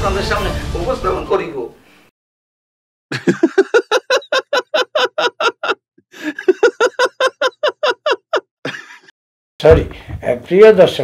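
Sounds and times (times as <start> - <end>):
rapid high-pitched laughter: 3.1 - 9.1.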